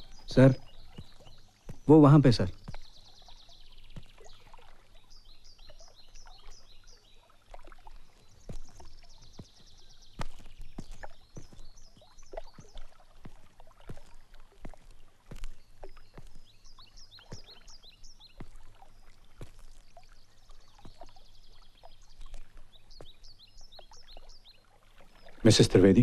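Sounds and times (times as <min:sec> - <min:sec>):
birds chirping: 0:00.0 - 0:26.0
water lapping: 0:00.0 - 0:26.0.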